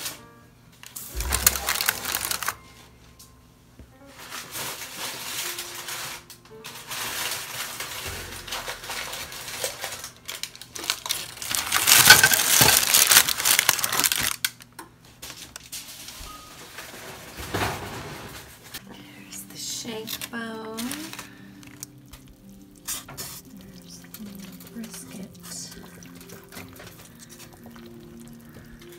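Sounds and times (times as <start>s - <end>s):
foil and paper crinkling: 0.8s - 2.7s, 4.1s - 18.8s, 19.5s - 28.9s
dishes clinking: 11.9s - 12.9s.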